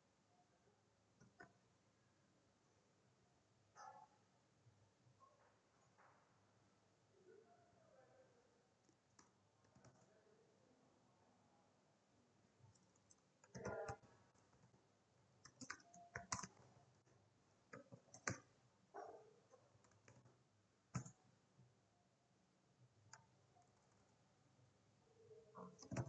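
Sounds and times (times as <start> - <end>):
computer keyboard keystrokes: 12.8 - 14.1, 15.5 - 16.7, 17.8 - 18.4, 21.0 - 21.2, 25.6 - 26.0.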